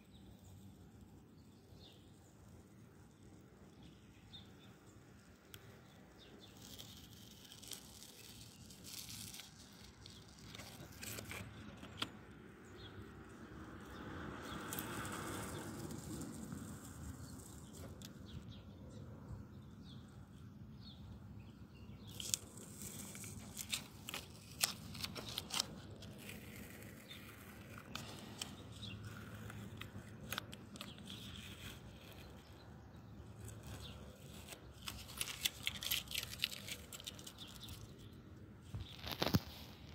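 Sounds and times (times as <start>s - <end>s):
masking tape peeling off: 1.8s - 12.2s, 14.5s - 18.4s, 22.1s - 39.7s.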